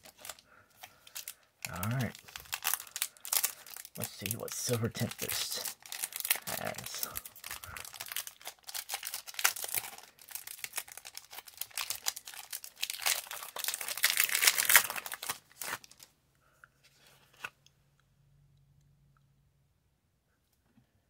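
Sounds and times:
foil wrapper tearing and crinkling: 0:00.0 - 0:16.1
faint low hum: 0:16.2 - 0:21.0.

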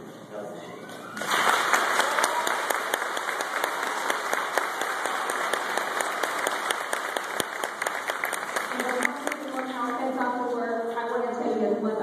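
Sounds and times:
audience applauding: 0:01.1 - 0:10.0.

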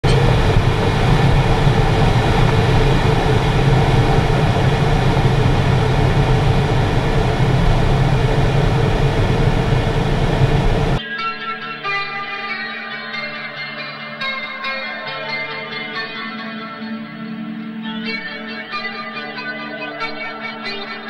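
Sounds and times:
faint steady hum: 0:00.0 - 0:11.0
rushing air: 0:00.0 - 0:11.0
wheel rumbling on runway: 0:00.0 - 0:11.0.

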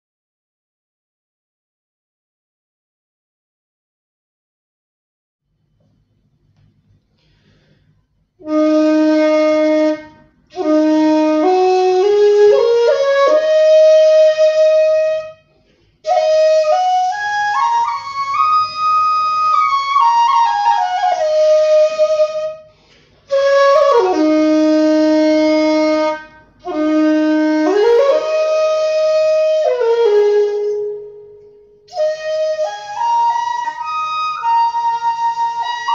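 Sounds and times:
bamboo flute playing: 0:08.4 - 0:35.9.

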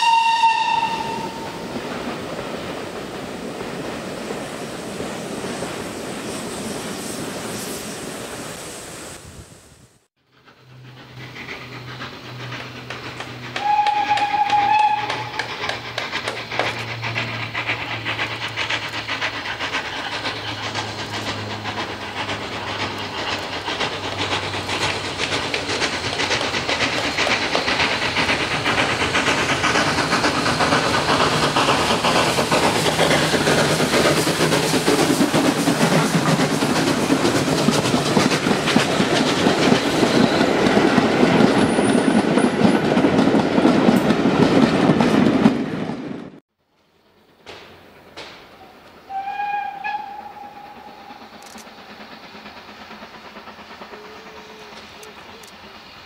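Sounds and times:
steam locomotive beats: 0:00.0 - 0:08.6, 0:10.2 - 0:46.4, 0:47.1 - 0:56.0
wheels clattering on rails: 0:10.4 - 0:46.1.

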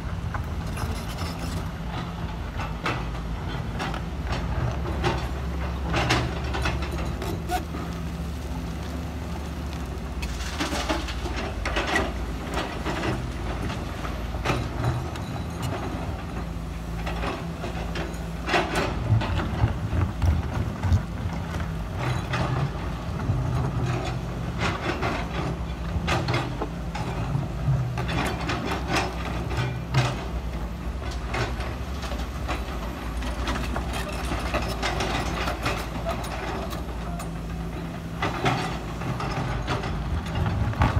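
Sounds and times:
excavator diesel engine running: 0:00.0 - 0:40.9.

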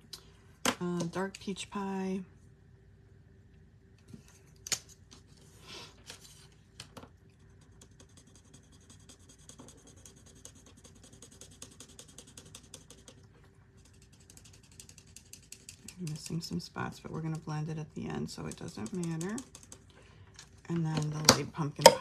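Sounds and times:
marker scratching on card: 0:07.7 - 0:13.2.

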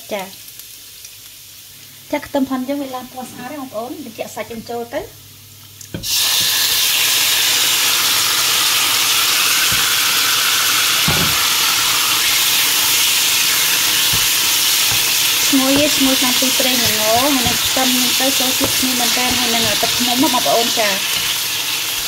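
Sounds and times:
meat sizzling in frying pan: 0:00.0 - 0:22.0
wooden spatula knocking pan: 0:09.6 - 0:10.4, 0:11.0 - 0:11.6, 0:12.5 - 0:21.4.

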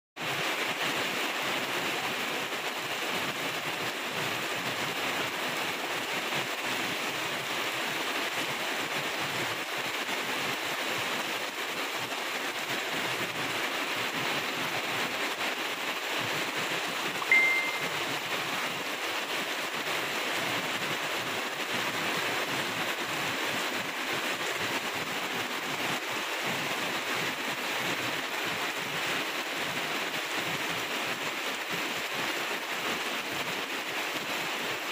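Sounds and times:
heavy rain: 0:00.2 - 0:34.9
short high-pitched tone: 0:17.2 - 0:18.0.

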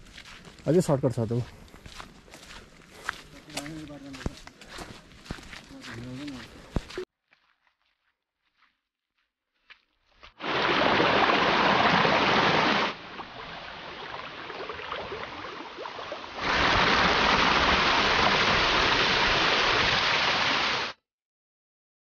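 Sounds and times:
stream running water: 0:10.3 - 0:21.0.

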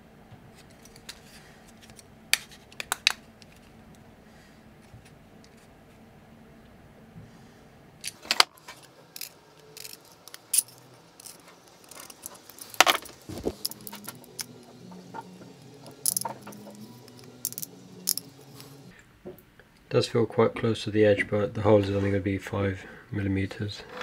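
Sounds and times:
tools and plastic parts clicking: 0:08.0 - 0:14.8, 0:15.8 - 0:18.3.

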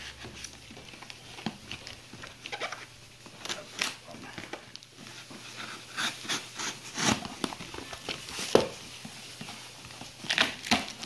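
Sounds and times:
knife slitting packing tape: 0:05.6 - 0:07.5
cardboard flaps ripping and rustling: 0:06.1 - 0:11.0.

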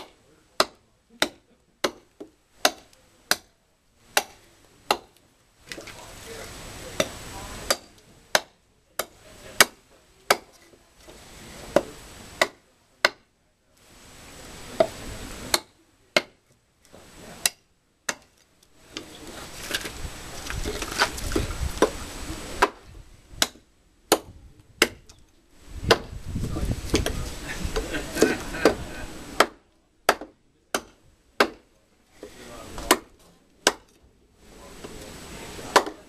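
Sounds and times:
knife chopping into wood: 0:29.4 - 0:31.6, 0:32.2 - 0:33.9, 0:35.7 - 0:36.0.

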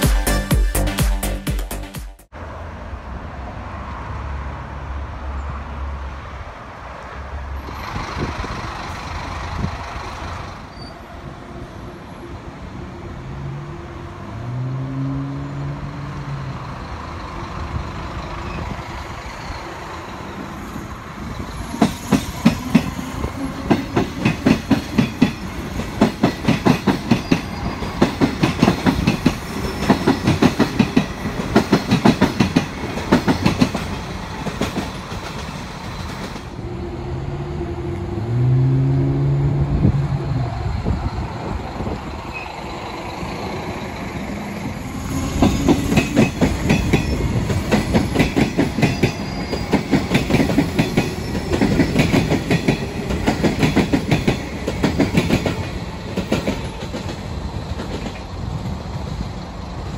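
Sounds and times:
bus engine running: 0:07.6 - 0:10.8, 0:16.0 - 0:20.4, 0:35.1 - 0:45.7
train wheels clacking over rail joints: 0:21.7 - 0:36.6, 0:45.2 - 0:59.9.

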